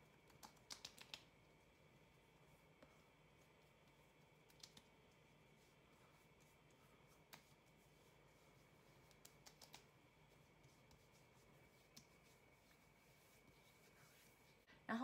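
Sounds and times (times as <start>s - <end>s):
fingertips patting skin: 0.2s - 1.4s, 3.5s - 5.2s, 6.2s - 13.5s.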